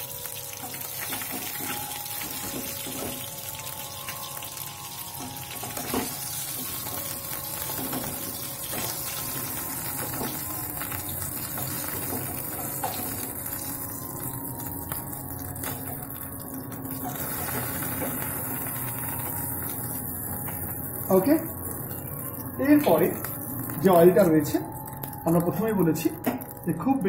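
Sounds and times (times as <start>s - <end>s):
fish sizzling in oil: 0.0s - 26.9s.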